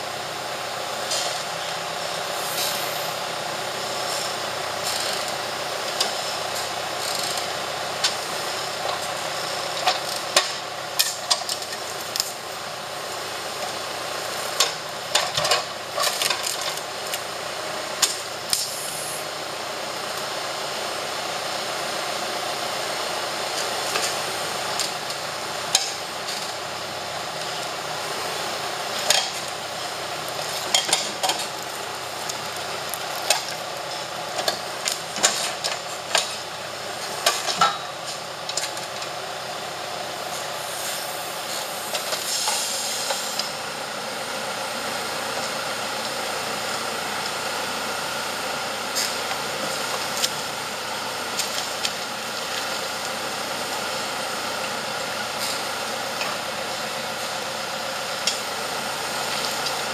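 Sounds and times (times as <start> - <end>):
tractor engine running: 0.0 - 59.9
hydraulic hiss: 2.3 - 3.2, 18.6 - 19.2, 40.6 - 43.5.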